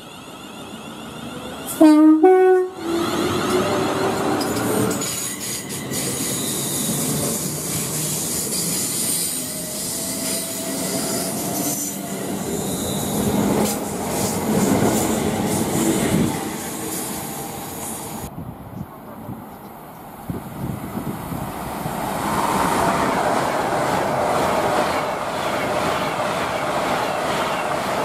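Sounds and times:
train wheels rumbling on rails: 0:02.8 - 0:28.0
high wheel squeal and whine: 0:05.1 - 0:13.5.

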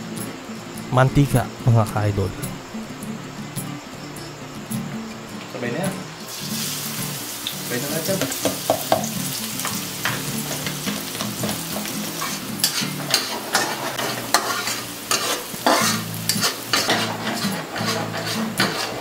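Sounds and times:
food sizzling in oil: 0:02.6 - 0:19.0
metal spatula scraping pan: 0:10.0 - 0:19.0.

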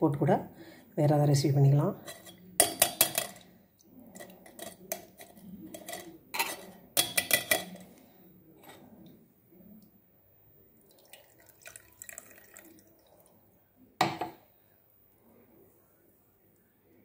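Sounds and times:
juice pouring through a metal strainer: 0:10.8 - 0:13.4.

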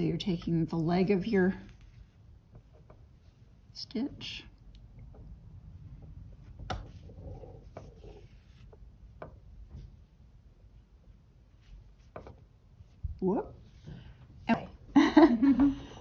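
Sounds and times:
thread rubbing through felt: 0:06.4 - 0:09.0.

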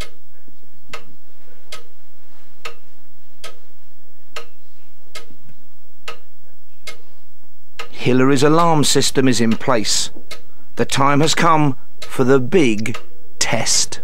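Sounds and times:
sharp ticking: 0:04.4 - 0:07.1, 0:07.7 - 0:14.0.

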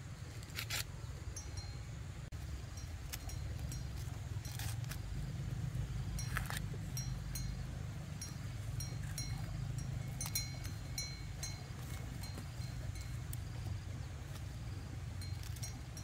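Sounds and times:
corn husks rustling and tearing: 0:00.3 - 0:01.0, 0:03.0 - 0:05.2, 0:06.2 - 0:06.8
low rumble: 0:01.2 - 0:16.0
high-pitched ringing notes: 0:05.7 - 0:13.9.

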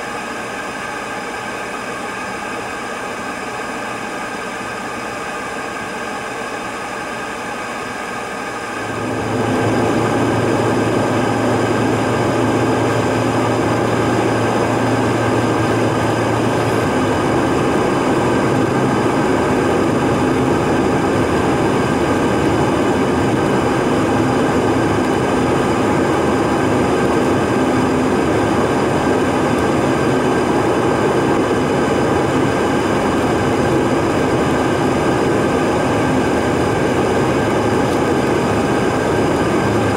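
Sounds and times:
car engine and tyre noise: 0:00.0 - 0:39.9.

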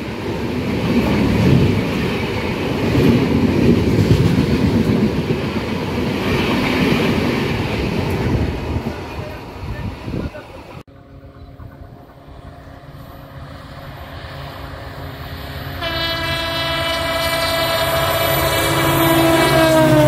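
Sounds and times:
diesel locomotive engine and wheels: 0:00.0 - 0:20.0
locomotive horn blast: 0:15.7 - 0:20.0.

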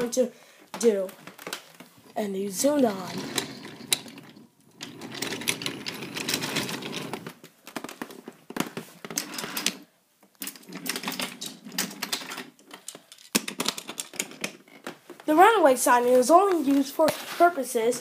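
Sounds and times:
toy train clattering on wooden track: 0:02.8 - 0:08.1, 0:10.4 - 0:14.6.

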